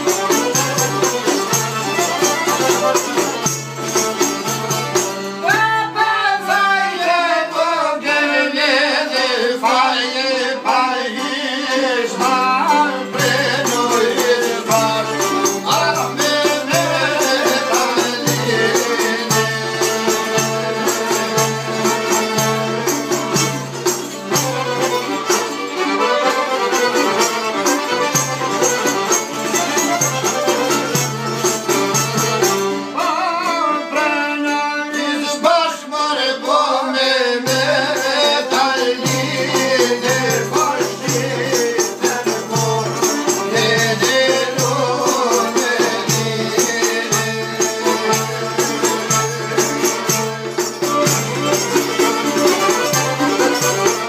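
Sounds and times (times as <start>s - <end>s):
stringed instrument accompaniment: 0.0s - 54.0s
men singing folk song: 5.4s - 23.7s, 32.8s - 54.0s.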